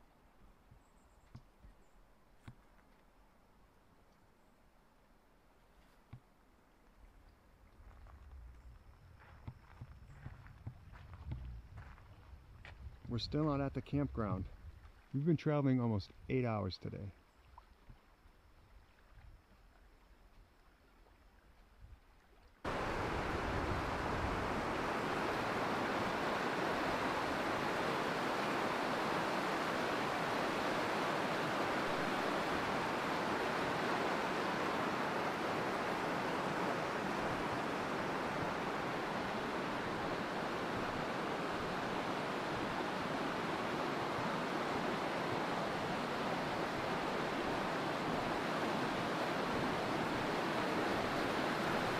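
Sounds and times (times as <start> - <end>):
stream water rushing over rocks: 22.7 - 51.9.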